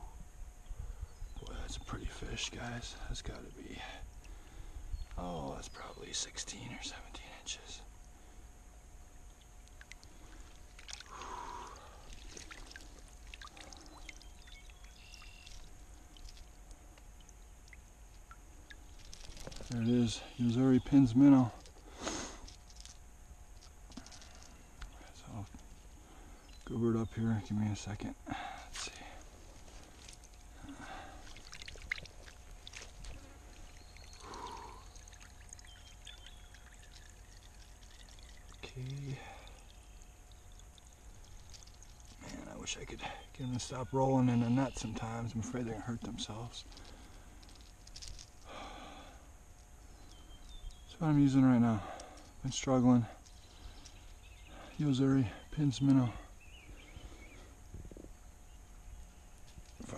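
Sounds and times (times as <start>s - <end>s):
water splashing and trickling: 9.3s - 26.7s, 27.8s - 48.8s
water swish: 9.8s - 17.8s.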